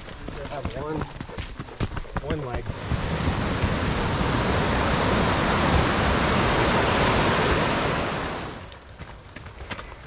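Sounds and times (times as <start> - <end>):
creek rushing: 2.6 - 8.7.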